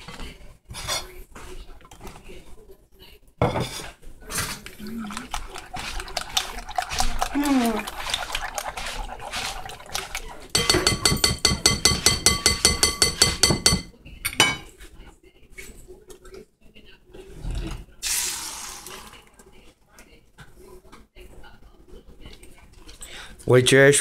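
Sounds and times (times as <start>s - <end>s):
utensil clinking against bowl: 5.0s - 14.7s.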